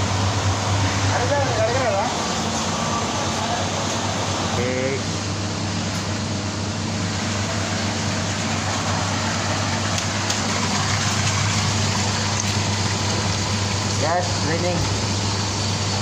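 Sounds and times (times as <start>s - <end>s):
low machine hum: 0.0s - 16.0s
washing machine draining: 0.0s - 16.0s
water running into floor drain: 7.6s - 16.0s.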